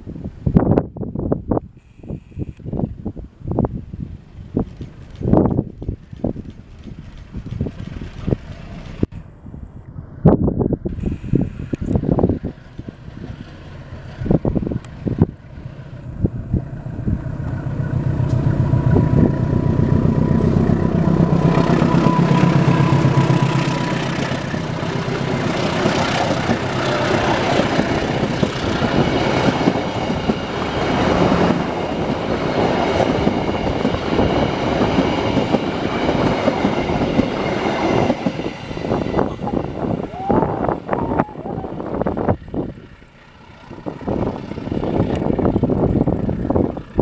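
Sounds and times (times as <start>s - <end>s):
train wheels clattering on rails: 4.6s - 9.1s, 17.4s - 39.9s
locomotive engine throbbing: 12.0s - 47.0s.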